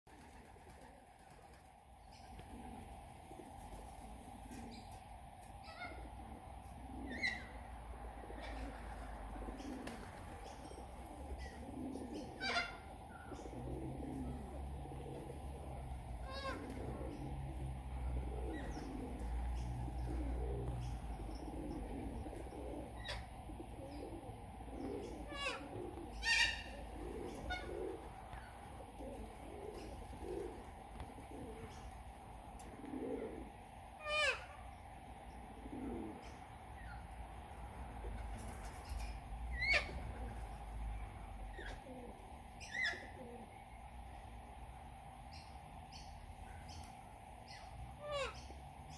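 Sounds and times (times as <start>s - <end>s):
corellas calling: 0.1s - 48.9s
soft low cooing: 2.2s - 10.2s, 10.8s - 34.8s, 35.4s - 37.2s, 39.7s - 43.7s.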